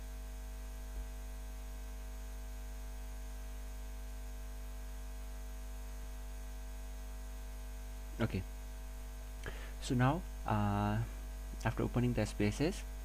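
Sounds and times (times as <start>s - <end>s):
electrical mains hum: 0.0s - 13.0s
microphone hiss: 8.0s - 13.0s.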